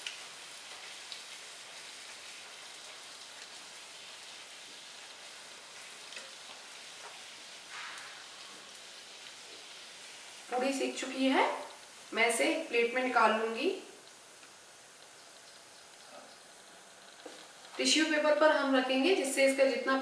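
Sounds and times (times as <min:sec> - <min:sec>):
bread deep-frying in hot oil: 0:00.0 - 0:20.0.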